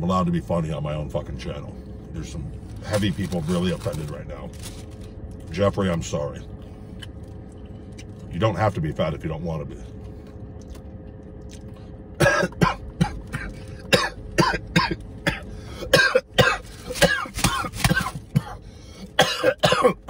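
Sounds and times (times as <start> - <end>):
man coughing hard: 12.2 - 20.0.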